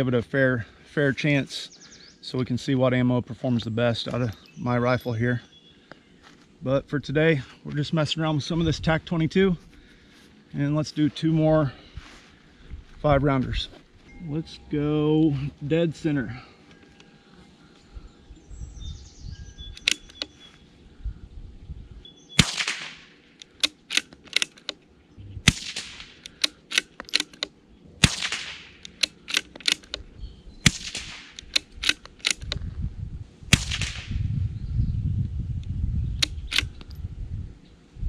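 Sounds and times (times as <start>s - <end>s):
rifle bolt metallic clicks: 19.7s - 20.4s, 22.4s - 24.8s, 25.5s - 30.1s, 30.7s - 32.6s, 36.2s - 37.0s
rifle shots: 22.4s - 24.6s, 25.4s - 27.4s, 28.0s - 30.0s, 30.6s - 32.4s, 33.5s - 34.2s.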